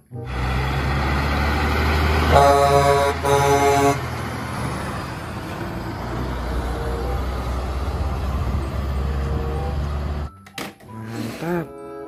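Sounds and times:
diesel engine running: 0.0 - 10.3
truck air horn blasts: 2.2 - 4.0.

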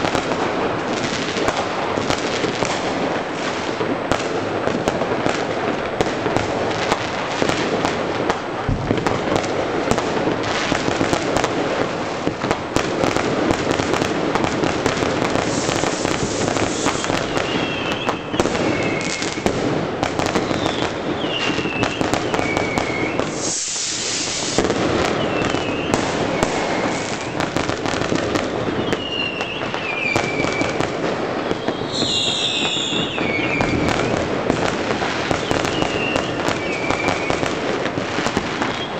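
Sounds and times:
fireworks and firecrackers crackling: 0.0 - 38.9
whistling fireworks: 0.0 - 38.9
bright hiss: 15.3 - 17.8, 23.2 - 24.8.

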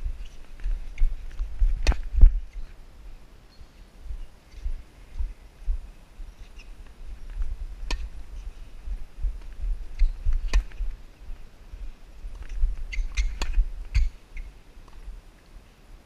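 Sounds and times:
steady low rumble: 0.0 - 16.0
racket hitting tennis ball: 7.8 - 8.1, 10.4 - 10.8.

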